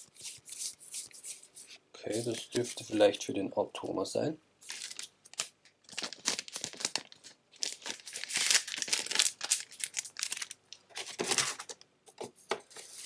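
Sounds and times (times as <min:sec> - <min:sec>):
plastic packaging crinkling: 0:04.6 - 0:11.8.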